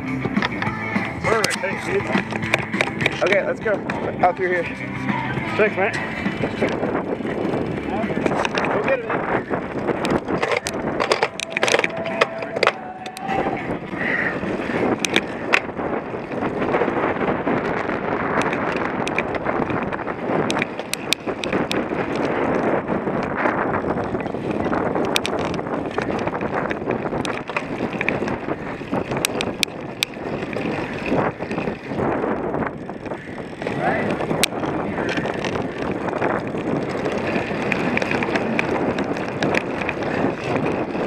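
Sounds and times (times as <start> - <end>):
bike clicks and rattles: 0.0 - 41.0
bike tyres rolling: 0.0 - 41.0
wind rushing over microphone: 0.0 - 41.0.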